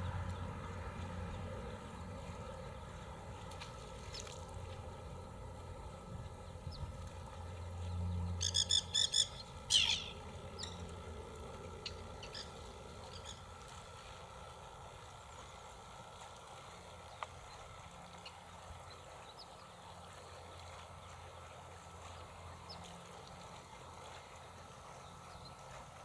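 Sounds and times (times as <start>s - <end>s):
bird chirps: 8.4s - 10.8s
sweeping bird call: 8.4s - 10.8s.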